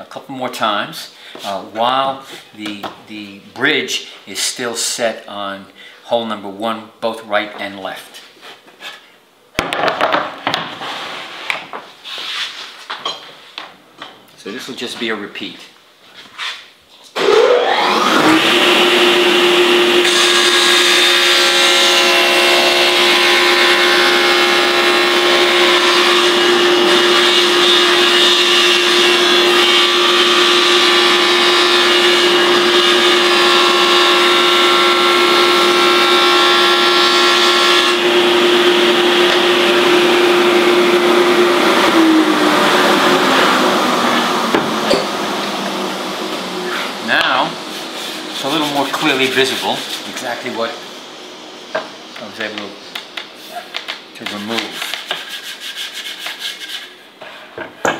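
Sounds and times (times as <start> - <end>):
saw blade winding down: 17.2 - 23.2
table saw running: 17.2 - 50.8
saw blade cutting wood: 46.6 - 50.6, 54.2 - 57.0.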